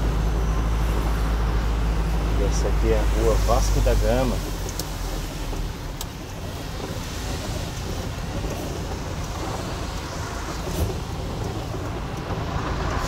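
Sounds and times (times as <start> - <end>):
car tyres splashing through water: 0.0 - 13.0
rain and wet road noise: 0.0 - 13.0.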